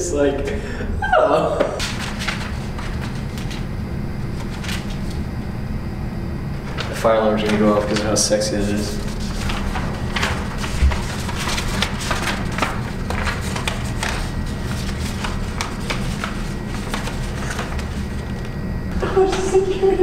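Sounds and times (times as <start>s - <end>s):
steady low hum: 0.0s - 20.0s
paper rustling and crinkling: 1.8s - 3.7s, 4.3s - 5.2s, 6.6s - 18.6s.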